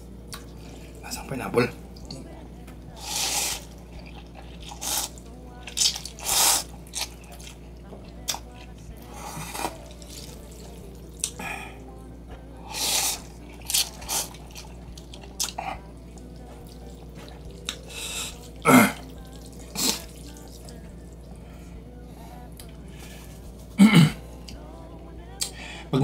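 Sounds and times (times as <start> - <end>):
person slurping noodles: 3.0 - 5.2, 5.8 - 7.5, 12.7 - 14.7, 19.7 - 20.2.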